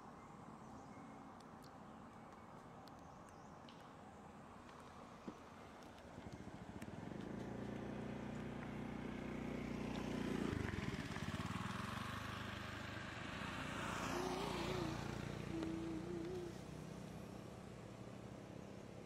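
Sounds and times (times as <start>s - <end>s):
traffic passing: 3.9s - 19.0s
vehicle engine running: 6.1s - 17.6s.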